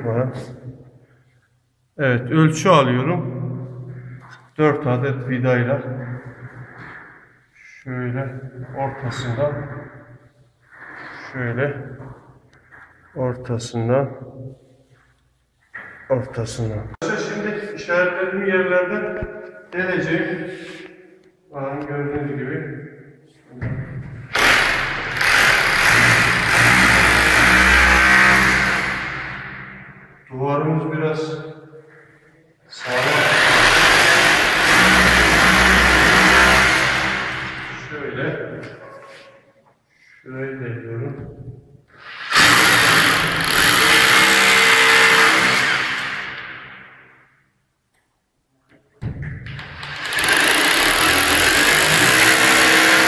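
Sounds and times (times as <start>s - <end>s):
electric drill boring into wall: 24.3s - 29.6s, 32.8s - 37.8s, 42.0s - 46.6s, 49.6s - 53.0s.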